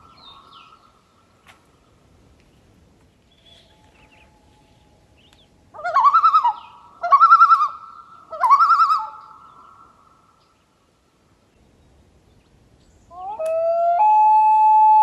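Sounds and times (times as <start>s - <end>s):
loon calling: 5.8s - 10.0s, 13.1s - 15.0s.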